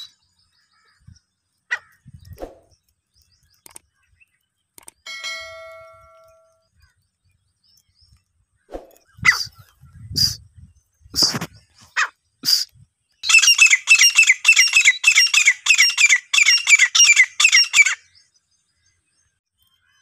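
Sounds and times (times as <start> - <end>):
francolin calling: 12.0 - 18.2.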